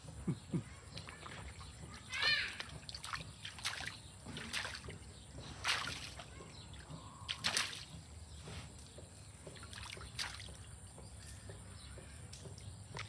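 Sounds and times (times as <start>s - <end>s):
dog splashing in muddy water: 0.8s - 8.2s, 9.3s - 10.8s.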